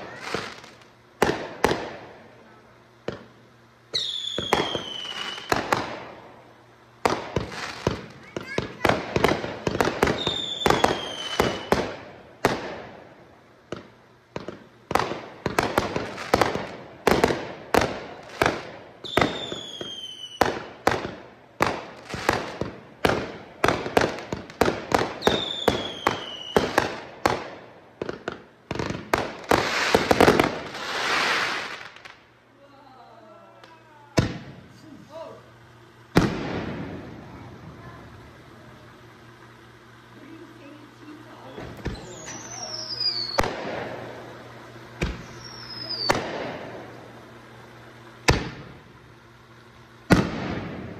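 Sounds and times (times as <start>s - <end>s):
fireworks launching and bursting: 0.0s - 32.6s, 33.5s - 50.9s
hissing crackle: 0.0s - 50.9s
falling firework whistle: 3.9s - 5.9s, 7.3s - 12.0s, 19.0s - 20.7s, 25.2s - 27.0s, 41.3s - 43.9s, 45.0s - 46.7s.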